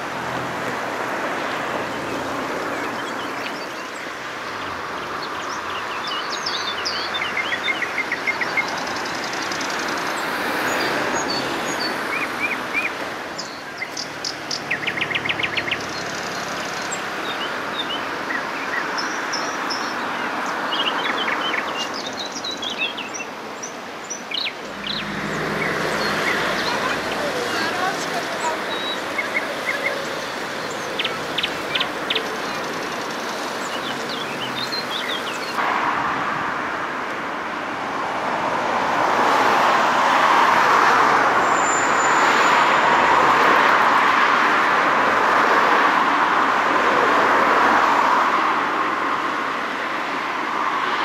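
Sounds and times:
songbirds chirping and trilling: 0.0s - 35.6s.

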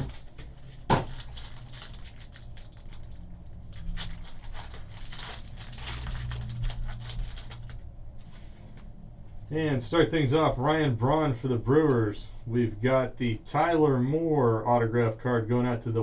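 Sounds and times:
wrapper crinkling and tearing: 0.0s - 7.9s.

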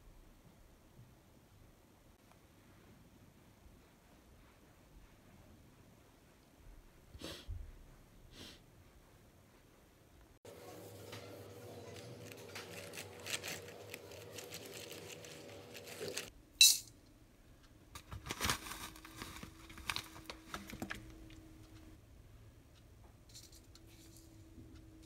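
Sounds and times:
faint steady hum: 8.7s - 25.0s.

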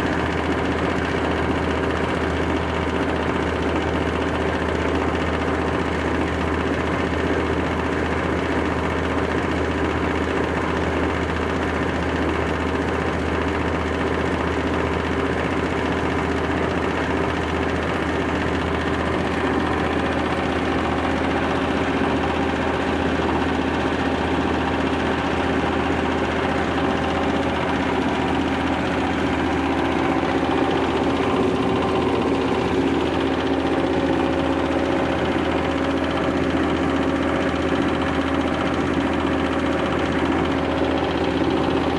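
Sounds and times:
grinding mill drone: 15.9s - 41.9s.

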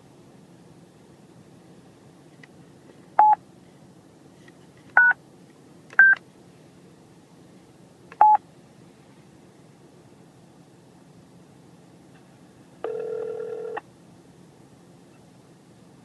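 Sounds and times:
phone keypad beeps: 6.0s - 6.2s, 8.2s - 8.4s, 12.8s - 13.8s.

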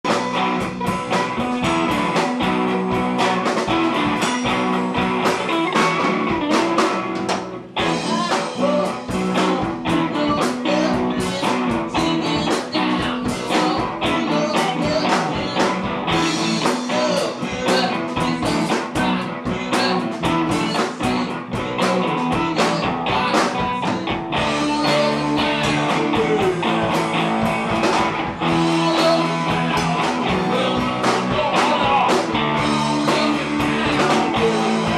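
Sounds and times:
bass guitar: 0.0s - 34.9s
drums with steady beat: 0.0s - 34.9s
electric guitars: 0.0s - 34.9s
man singing: 7.8s - 34.9s.

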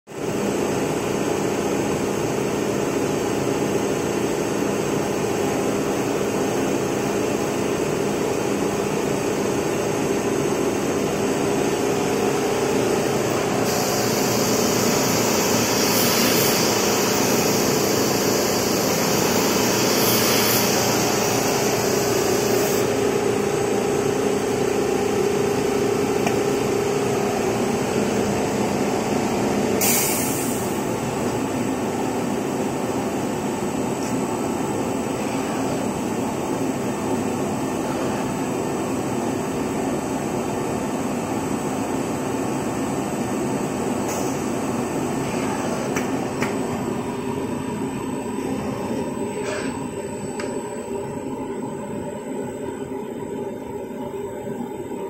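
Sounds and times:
cutter machine humming: 12.8s - 28.8s.

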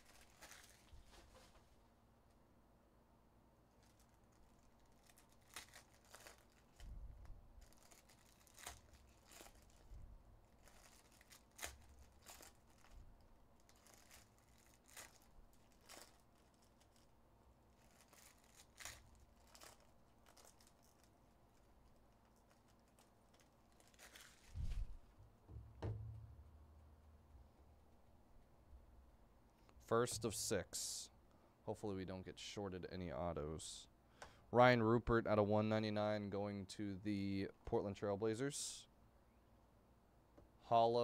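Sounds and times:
foil packs tearing and crinkling: 0.0s - 1.0s, 3.8s - 6.9s, 7.6s - 9.9s, 10.5s - 17.1s, 17.7s - 24.6s
low thumps: 24.6s - 27.1s.

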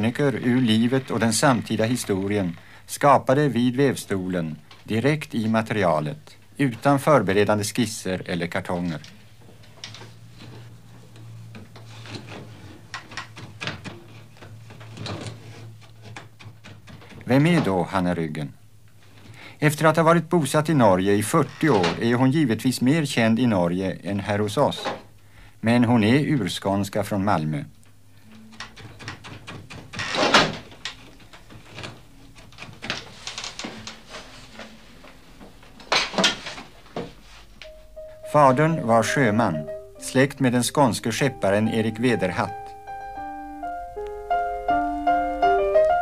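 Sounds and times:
rustling scrape: 14.1s - 16.2s, 33.0s - 35.4s.

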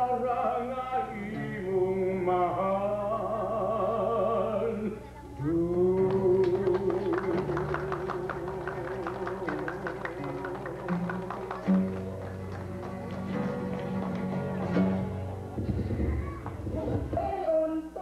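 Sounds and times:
person singing with vibrato: 0.0s - 11.4s, 16.8s - 18.0s
strummed acoustic guitars: 3.8s - 17.6s.

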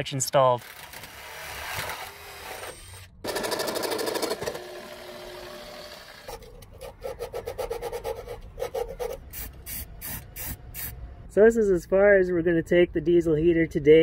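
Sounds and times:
jigsaw cutting plywood: 0.6s - 7.6s
cordless drill running: 0.7s - 6.4s.

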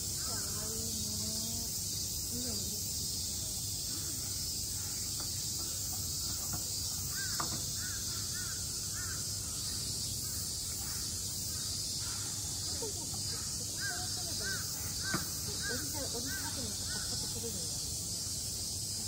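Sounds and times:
cicadas droning: 0.0s - 19.0s
crow cawing: 7.1s - 9.3s, 13.3s - 17.3s.

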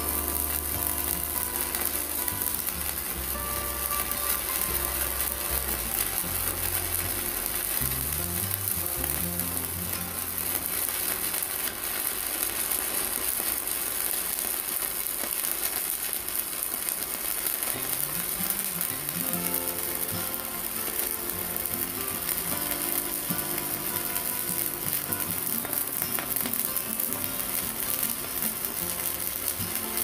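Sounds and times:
background music with bass line: 0.0s - 10.9s
welding arc crackling and sizzling: 0.0s - 30.0s.

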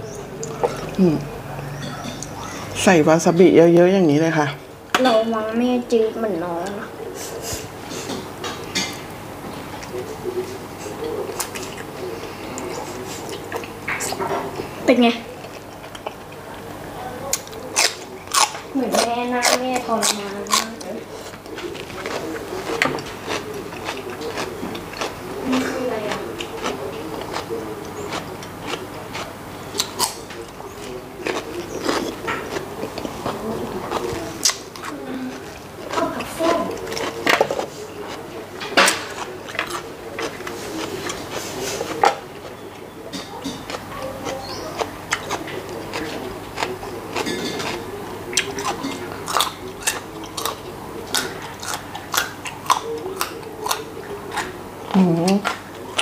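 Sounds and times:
carrot crunching: 15.3s - 56.0s.

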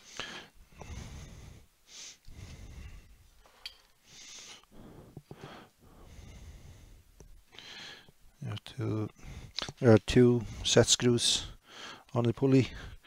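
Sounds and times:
person breathing through nose: 0.0s - 3.3s, 4.0s - 8.1s, 9.1s - 9.6s, 11.5s - 12.1s.

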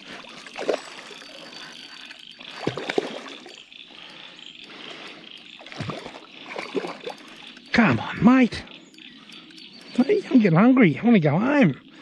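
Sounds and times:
crickets trilling: 0.0s - 12.0s
fish splashing at water surface: 2.0s - 3.6s.

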